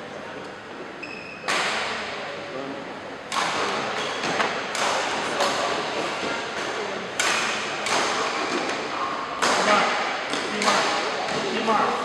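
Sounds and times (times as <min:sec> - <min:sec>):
racket striking shuttlecock: 0:03.3 - 0:11.5.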